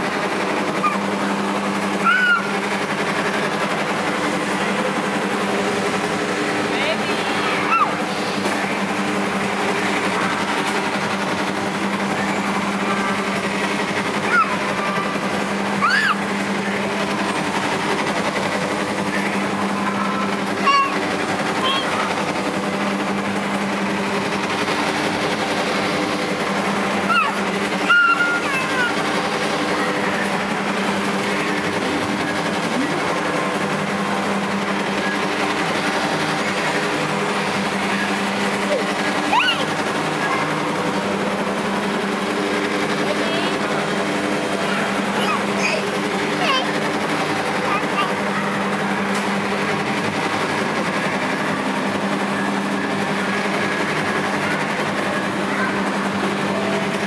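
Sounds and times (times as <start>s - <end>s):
arcade machines humming din: 0.0s - 57.0s.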